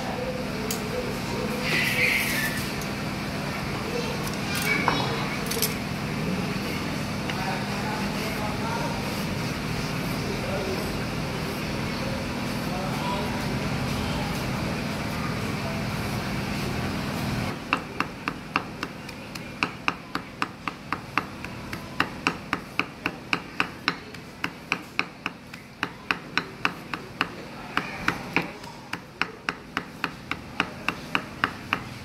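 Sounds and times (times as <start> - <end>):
cleaver chopping on wooden block: 17.7 - 31.9.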